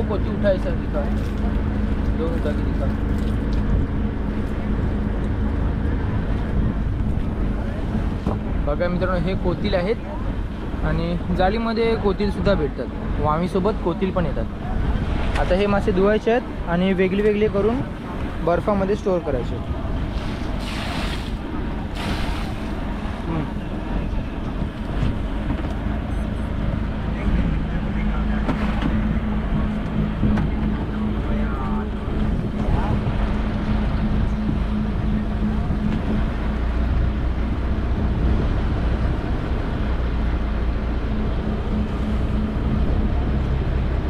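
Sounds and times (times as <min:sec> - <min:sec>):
boat engine running: 0:00.0 - 0:44.0
wind on microphone: 0:03.1 - 0:10.8, 0:19.5 - 0:44.0
even rushing noise: 0:14.3 - 0:44.0.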